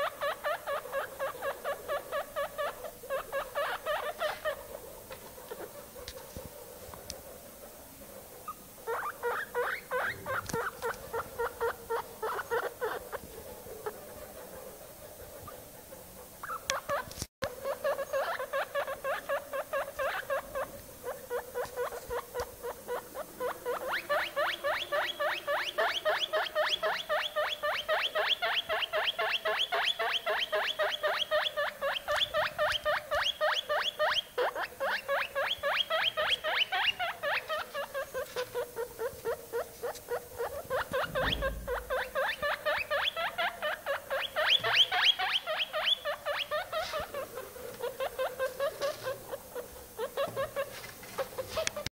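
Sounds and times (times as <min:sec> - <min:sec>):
guinea pig squeaking: 0:00.0 - 0:04.7, 0:08.8 - 0:13.1, 0:16.4 - 0:51.9.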